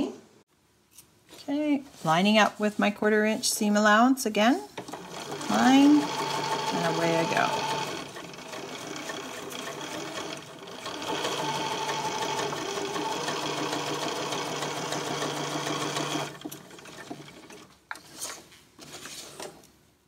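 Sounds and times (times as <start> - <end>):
sewing machine stitching: 4.8 - 18.2.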